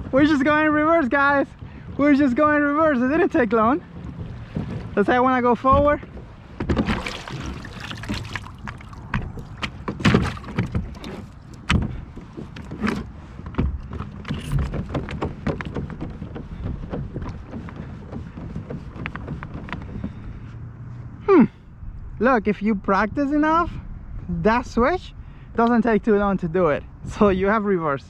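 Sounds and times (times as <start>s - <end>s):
knocks on plastic kayak hull: 5.7s - 20.1s.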